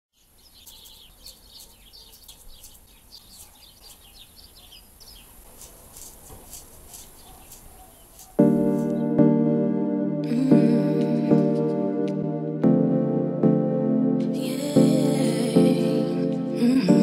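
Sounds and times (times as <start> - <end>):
small birds chirping: 0.1 - 9.2
sustained music chord: 8.4 - 17.0.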